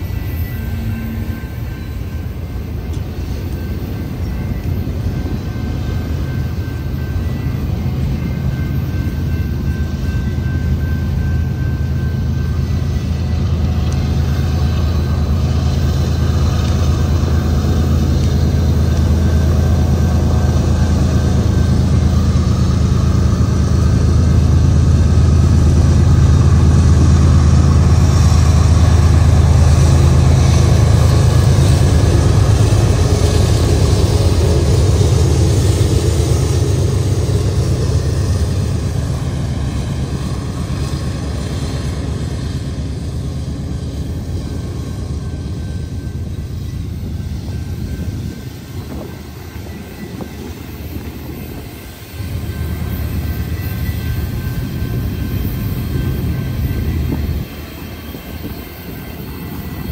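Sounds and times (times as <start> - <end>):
locomotive engines droning: 0.0 - 59.9.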